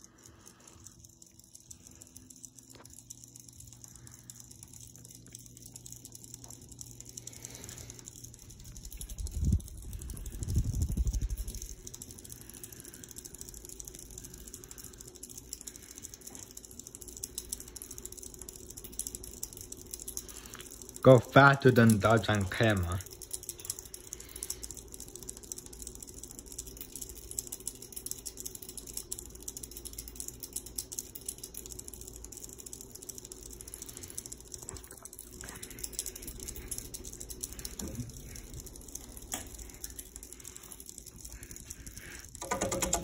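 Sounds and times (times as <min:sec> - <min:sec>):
ceiling fan motor humming: 0:00.0 - 0:43.0
light rattling clicks: 0:00.0 - 0:43.0
wind buffeting on microphone: 0:09.1 - 0:11.6.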